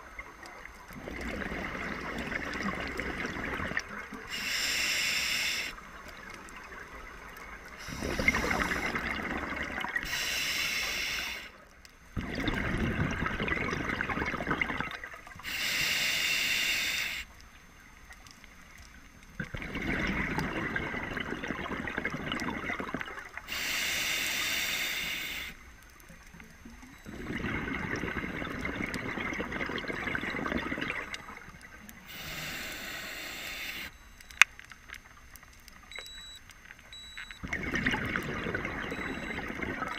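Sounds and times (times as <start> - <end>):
exhaled bubbles: 0.0 - 10.3, 12.2 - 16.0, 19.0 - 25.6, 26.2 - 34.0, 37.4 - 39.9
regulator hissing inhales: 4.3 - 5.8, 7.8 - 9.0, 10.0 - 11.6, 15.4 - 17.3, 23.5 - 25.6, 32.1 - 33.9.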